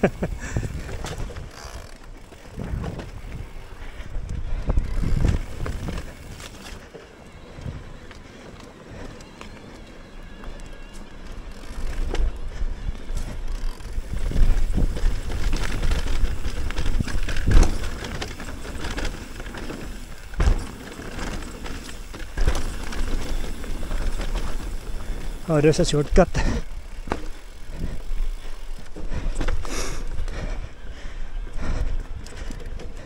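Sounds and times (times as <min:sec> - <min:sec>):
bike tyres on dirt and rock: 0:00.0 - 0:33.0
bike knocking over bumps: 0:14.1 - 0:25.4.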